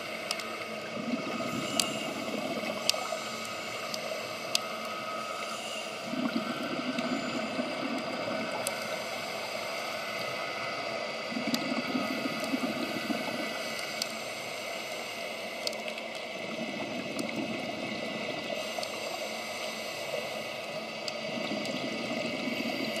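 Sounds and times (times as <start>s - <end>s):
steady regulator hiss: 0.0s - 23.0s
faint clicks: 0.2s - 0.9s, 1.6s - 5.6s, 7.7s - 9.0s, 9.6s - 16.4s, 17.1s - 17.4s, 18.4s - 22.5s
underwater exhaled bubbles: 0.8s - 4.8s, 5.4s - 9.4s, 11.2s - 13.6s, 21.1s - 23.0s.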